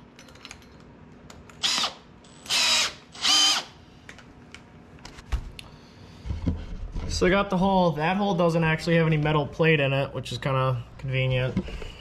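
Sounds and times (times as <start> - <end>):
cordless drill motor whine: 1.6 - 3.8.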